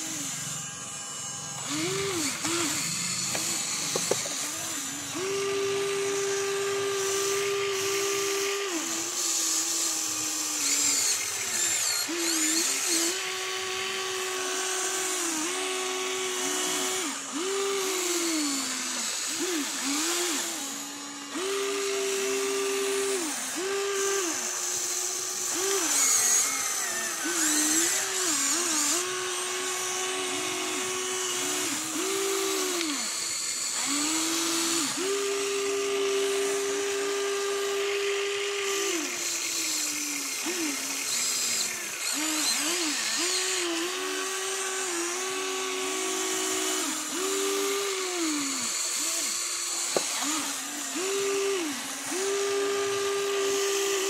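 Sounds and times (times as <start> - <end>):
electric motors whining: 0.0 - 54.0.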